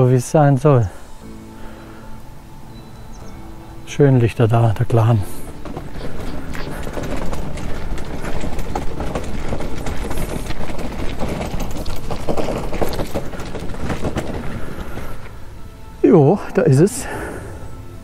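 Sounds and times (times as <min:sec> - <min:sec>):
footsteps walking: 0:05.0 - 0:15.4
wind rumbling on microphone: 0:05.0 - 0:15.4.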